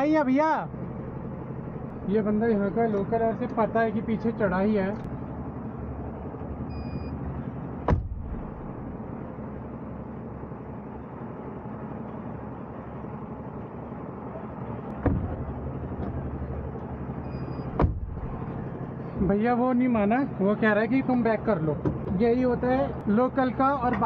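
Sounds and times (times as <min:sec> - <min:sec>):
van engine running: 0:00.0 - 0:24.0
sharp knocks: 0:07.8 - 0:08.5, 0:15.0 - 0:16.2, 0:17.7 - 0:18.4.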